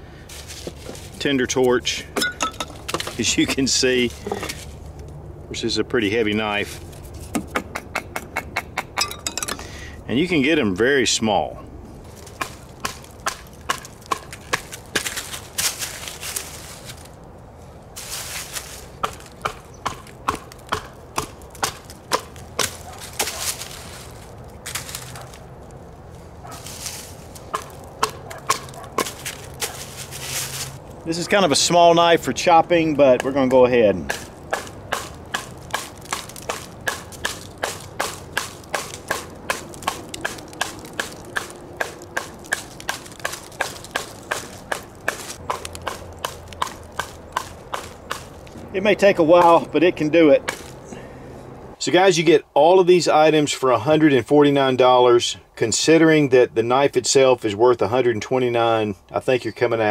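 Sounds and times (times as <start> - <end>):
soft rustling: 0.3 - 1.3, 15.1 - 19.0, 22.8 - 27.9, 28.8 - 31.1
knife chopping into stick: 12.4 - 15.2, 19.0 - 23.4, 27.5 - 29.8, 33.1 - 48.3.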